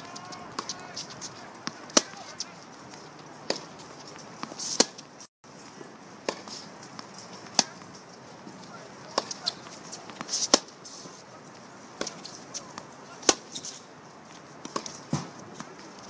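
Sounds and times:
tennis ball bouncing on hard court: 0.1s - 2.4s, 9.1s - 10.7s, 14.6s - 15.7s
tennis ball struck by racquets: 0.1s - 2.4s, 3.4s - 3.7s, 4.4s - 5.0s, 6.2s - 7.9s, 9.1s - 10.8s, 12.0s - 13.7s, 14.6s - 15.7s.

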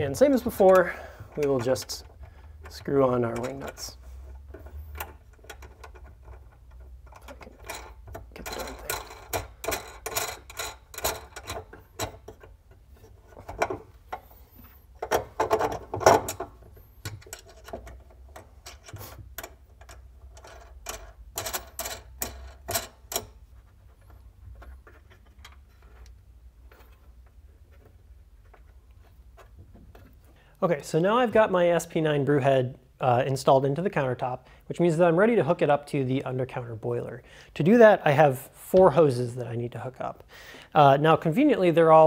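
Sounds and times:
wing nuts clicking on bolts: 0.2s - 12.6s, 15.0s - 23.4s.

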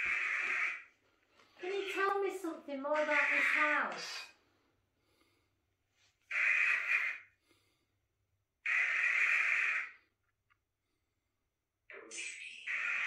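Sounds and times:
person breathing heavily: 7.4s - 8.1s.

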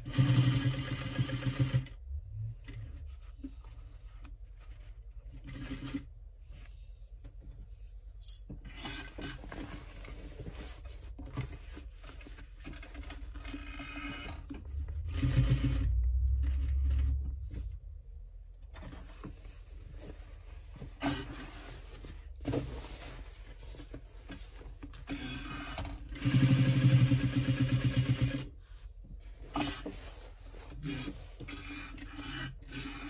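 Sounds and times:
sewing machine stitching: 0.0s - 2.0s, 5.3s - 6.1s, 12.7s - 17.2s, 25.0s - 28.5s.

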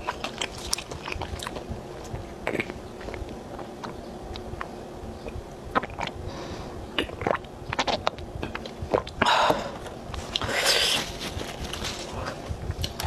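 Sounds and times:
tissue paper rustling: 10.2s - 12.4s.

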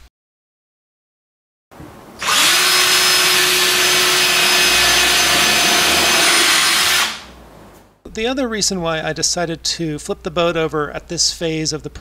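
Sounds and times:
cordless drill into wood: 2.2s - 7.4s.

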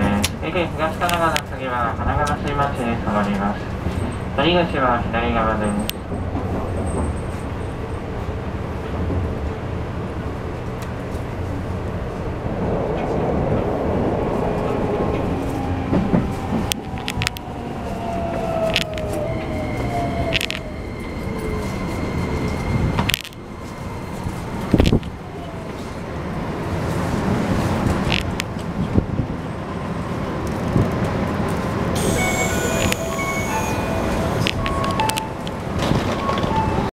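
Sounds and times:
track clicks and knocks: 15.9s - 17.5s, 33.9s - 36.9s
electric train motor whine: 32.0s - 34.9s.

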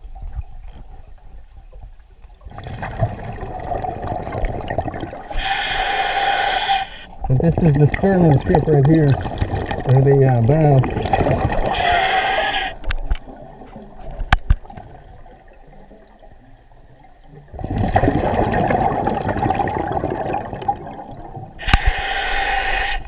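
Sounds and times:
gurgling exhaled bubbles: 2.4s - 23.0s
regulator breathing hiss: 5.3s - 7.2s, 11.8s - 12.8s, 21.6s - 23.0s.

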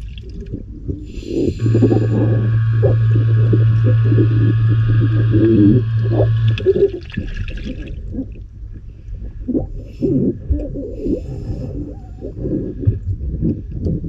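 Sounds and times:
bubbles gurgling: 0.0s - 8.6s
steady hum: 0.0s - 14.0s
diver breathing underwater: 0.9s - 6.9s, 9.0s - 13.0s.

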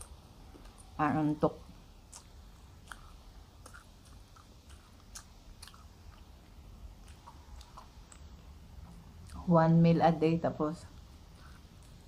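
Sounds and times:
faint chewing: 0.0s - 1.0s, 2.0s - 9.5s, 10.9s - 12.0s
soft mouth clicks: 2.1s - 6.3s.

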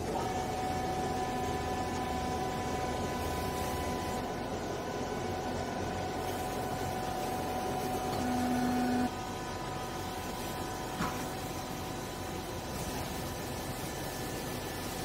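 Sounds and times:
electric pump motor humming: 0.0s - 15.0s
low motor tone: 7.5s - 9.2s.

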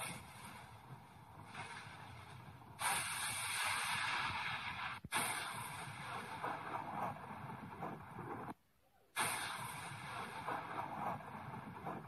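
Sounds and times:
steady wind-like hiss: 0.0s - 8.6s.

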